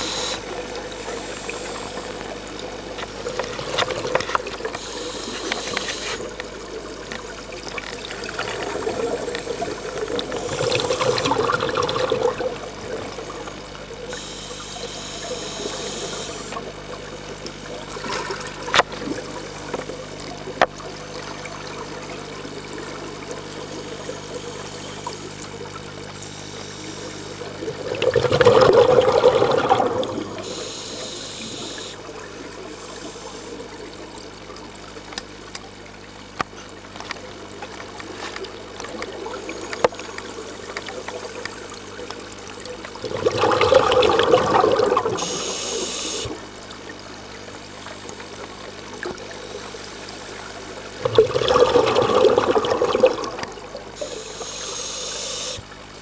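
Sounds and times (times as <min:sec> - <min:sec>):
high hiss of regulator: 0:00.0 - 0:00.5, 0:04.7 - 0:06.3, 0:14.1 - 0:16.7, 0:30.3 - 0:33.8, 0:45.2 - 0:46.4, 0:54.0 - 0:55.6
underwater breath bubbles gurgling: 0:00.0 - 0:56.0.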